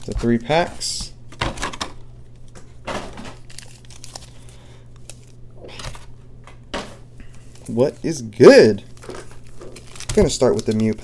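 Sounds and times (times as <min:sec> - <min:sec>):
foil wrappers crinkling: 0:03.3 - 0:06.1, 0:07.2 - 0:11.0.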